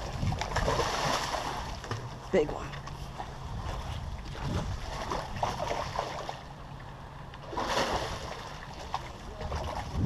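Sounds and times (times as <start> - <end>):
wind buffeting microphone: 0.0 - 2.3, 2.9 - 6.2, 9.1 - 10.0.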